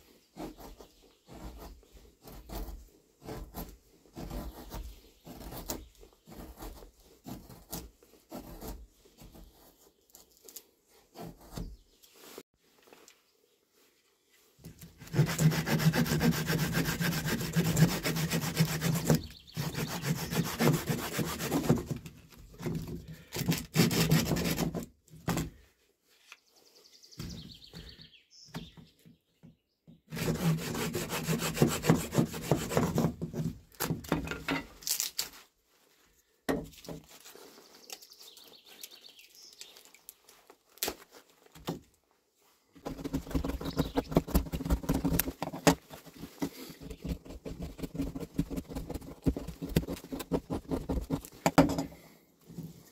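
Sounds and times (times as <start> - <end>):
hand saw rasping through log: 0.2 - 9.9, 11.1 - 11.8, 14.8 - 24.9, 30.1 - 34.0, 42.8 - 51.6.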